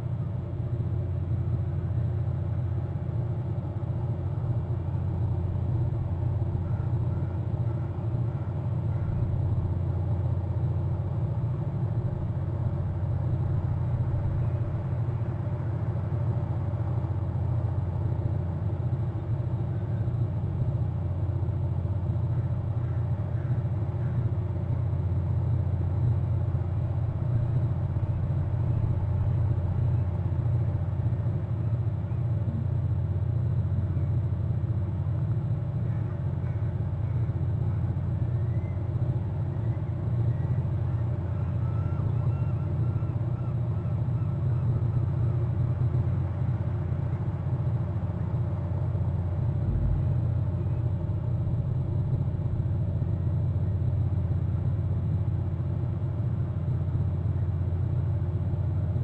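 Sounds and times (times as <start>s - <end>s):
faint hum: 0.0s - 59.0s
low rumble: 48.8s - 54.4s.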